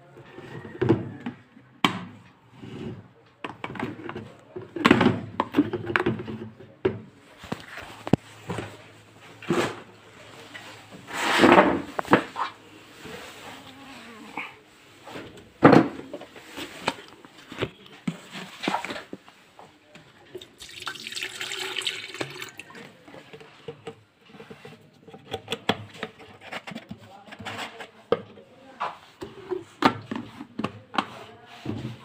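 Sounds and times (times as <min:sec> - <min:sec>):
water pouring into kettle: 0:20.4 - 0:22.8.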